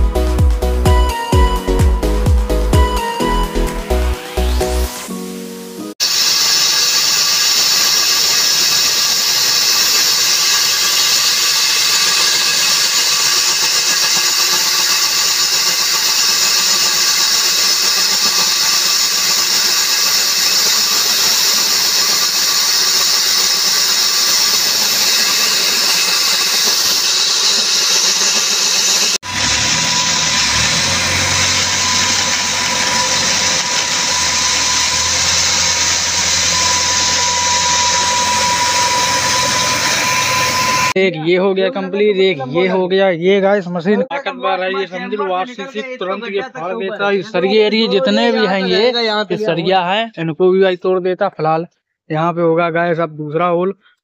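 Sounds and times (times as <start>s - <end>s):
core drill grinding concrete: 6.0s - 41.0s
deep hum: 29.2s - 41.0s.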